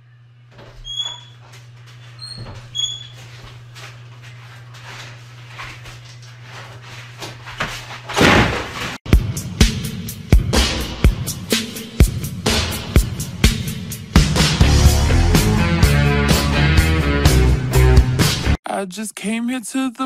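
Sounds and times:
short high squeaks: 0.6s - 3.4s.

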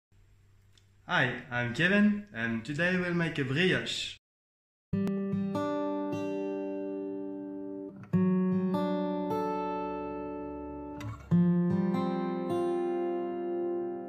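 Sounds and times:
plucked string chords: 5.0s - 14.0s.

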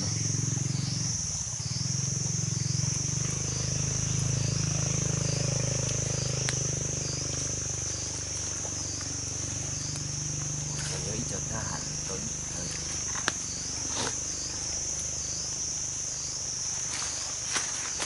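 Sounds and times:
insects buzzing: 0.0s - 18.0s
steady low hum: 0.0s - 18.0s.

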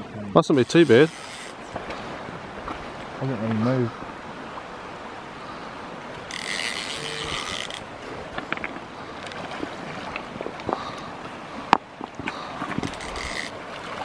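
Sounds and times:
river rushing: 0.0s - 14.0s
fishing reel drag buzzing: 0.6s - 1.6s, 6.2s - 7.9s, 12.9s - 13.6s.

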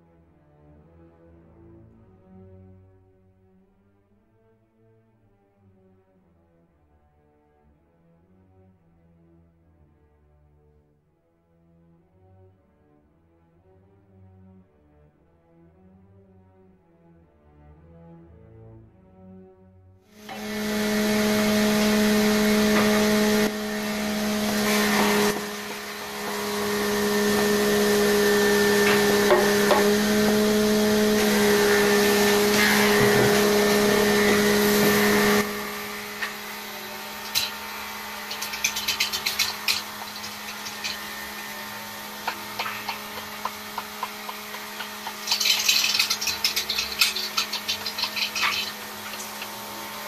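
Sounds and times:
lathe tool cutting wood: 20.2s - 50.0s
wood lathe humming: 20.2s - 50.0s.

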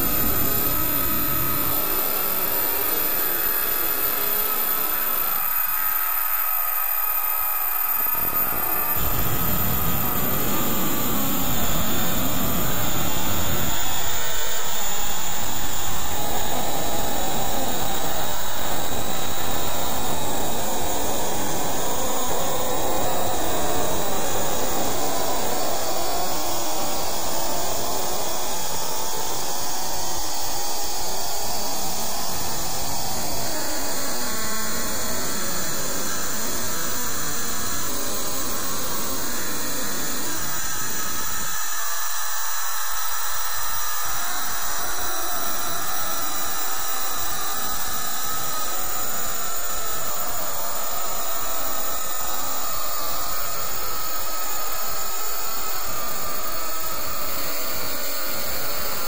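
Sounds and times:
dense rushing noise: 9.0s - 14.6s.

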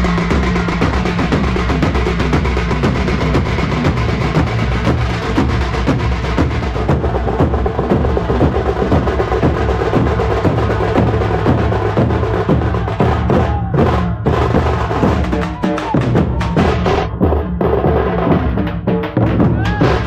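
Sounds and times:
drum band playing fast beat: 0.0s - 20.0s.

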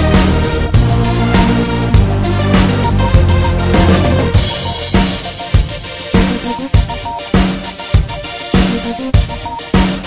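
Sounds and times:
sustained synth chords: 0.0s - 6.8s
electronic music with steady beat: 0.0s - 10.0s.

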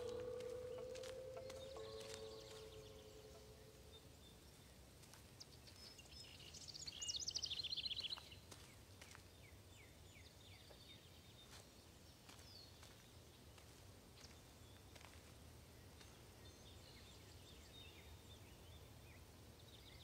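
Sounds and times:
songbird trilling and chirping: 0.0s - 4.8s, 5.4s - 8.5s.

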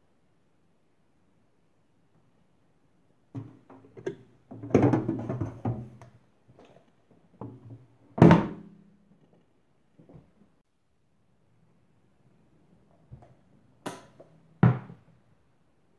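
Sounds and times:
metal pan knocks and thunks: 4.5s - 6.0s.

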